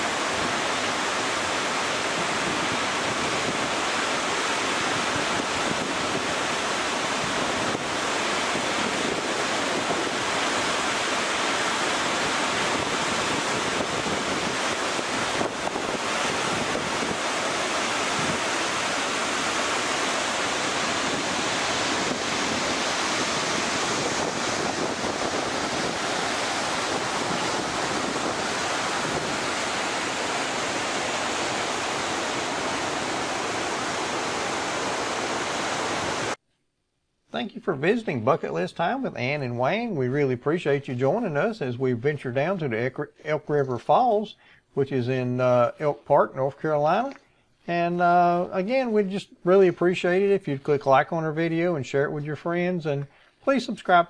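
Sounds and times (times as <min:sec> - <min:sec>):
waterfall rushing: 0:00.0 - 0:36.4.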